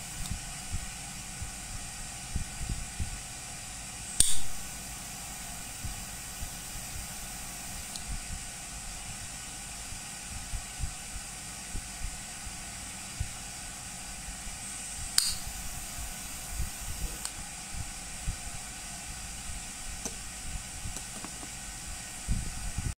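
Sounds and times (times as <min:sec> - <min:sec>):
jet-flame lighter hissing: 0:00.0 - 0:08.6, 0:14.1 - 0:22.5
lighter click: 0:04.2 - 0:04.7, 0:15.1 - 0:15.5.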